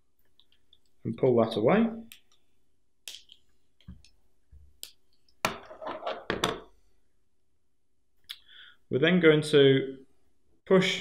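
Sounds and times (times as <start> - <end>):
tools knocking on wooden desk: 5.4 - 6.7.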